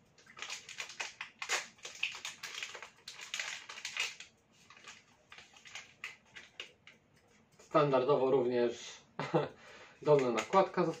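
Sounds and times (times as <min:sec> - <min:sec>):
plastic wrapper crinkling: 0:00.2 - 0:07.0, 0:10.0 - 0:11.0.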